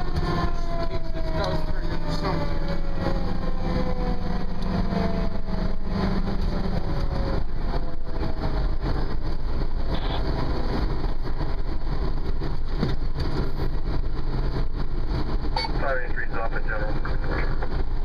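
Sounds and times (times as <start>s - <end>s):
fire engine running: 0.0s - 18.0s
road noise: 0.0s - 18.0s.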